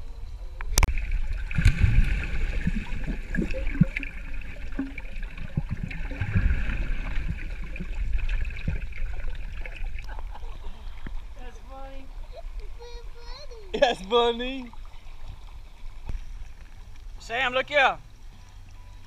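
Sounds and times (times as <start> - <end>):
underwater gurgling and bubbling: 0.2 - 11.4
low thumps of swimmers' kicks: 0.8 - 12.0.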